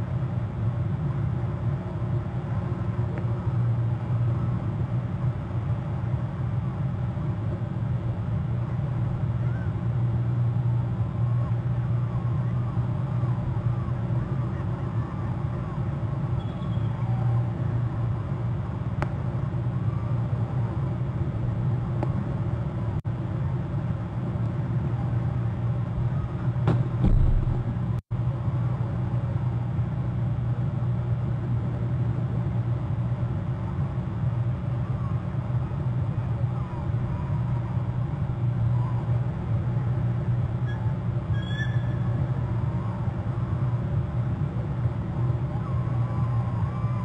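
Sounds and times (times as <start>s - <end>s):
steady low rumble: 0.0s - 41.3s.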